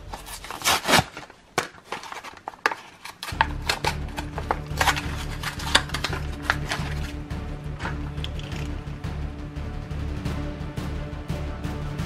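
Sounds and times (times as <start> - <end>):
low background music: 0.0 - 1.3, 2.0 - 12.0
plastic packaging being torn open: 0.0 - 7.2.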